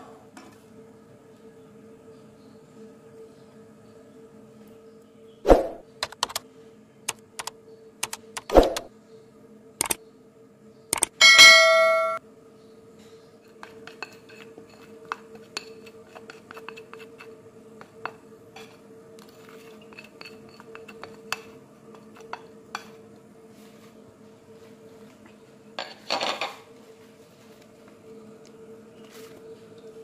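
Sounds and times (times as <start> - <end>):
faint steady hum: 0.0 - 30.0
spoon scraping metal pot: 13.5 - 18.8, 19.4 - 23.0.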